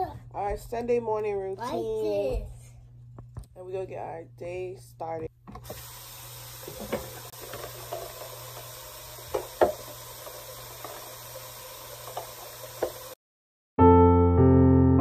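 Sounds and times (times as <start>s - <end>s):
plastic cup knocks and clatters: 9.3s - 9.9s.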